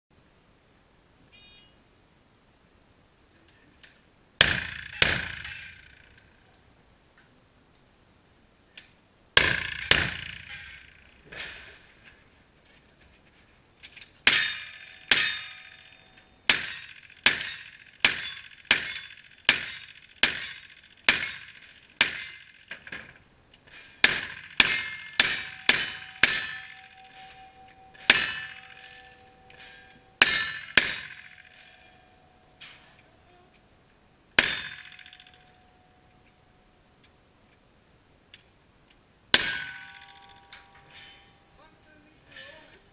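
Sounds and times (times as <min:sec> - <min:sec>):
steel targets ringing: 0:04.4 - 0:06.3, 0:09.4 - 0:11.7, 0:14.2 - 0:22.8, 0:23.7 - 0:33.3, 0:34.4 - 0:36.2, 0:39.3 - 0:42.9.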